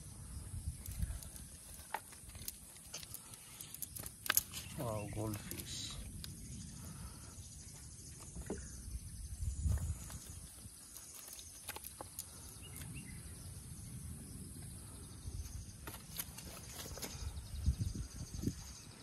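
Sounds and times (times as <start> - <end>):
scattered ticks: 0.8 - 6.7, 9.9 - 13.0.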